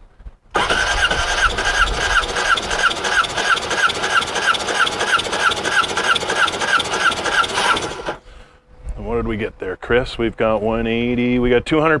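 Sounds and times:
electric starter cranking engine: 0.6s - 8.3s.

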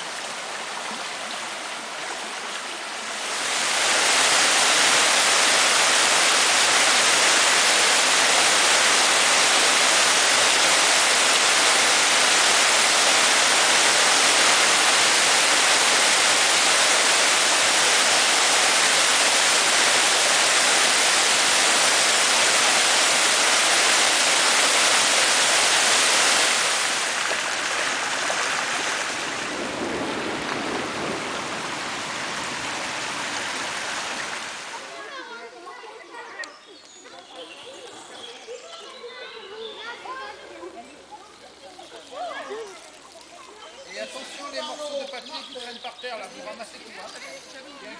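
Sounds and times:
stream rushing over rocks: 0.0s - 36.4s
floodwater running across a track: 0.0s - 47.9s.

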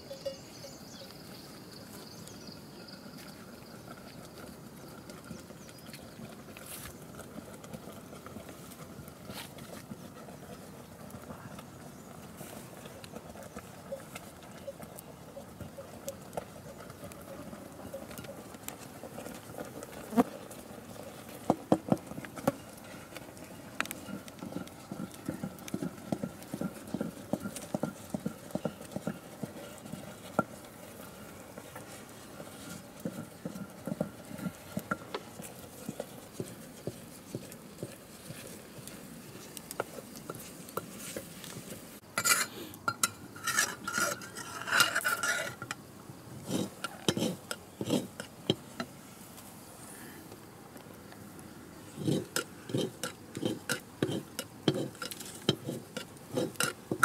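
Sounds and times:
clattering and scraping: 16.0s - 48.9s, 51.9s - 57.0s.

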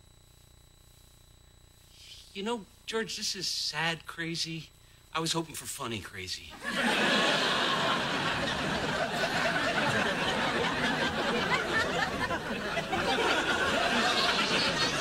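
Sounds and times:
studio audience laughing: 6.6s - 15.0s.

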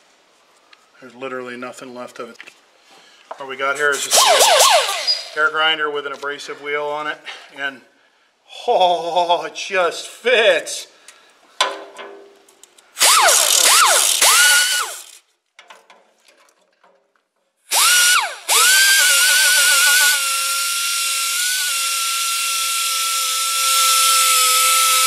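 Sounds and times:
air grinder grinding metal: 4.0s - 5.4s, 13.0s - 15.2s, 17.7s - 25.0s.

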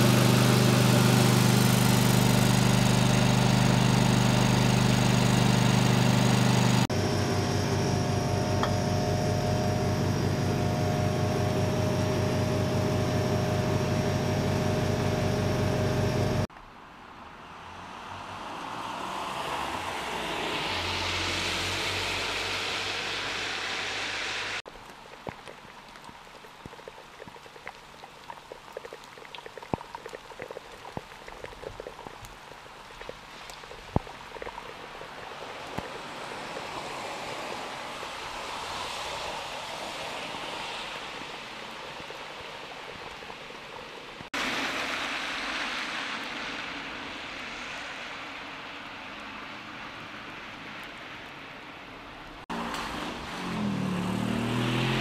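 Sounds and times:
steady rain hiss: 21.6s - 51.8s
raindrops tapping close by: 24.7s - 37.1s.

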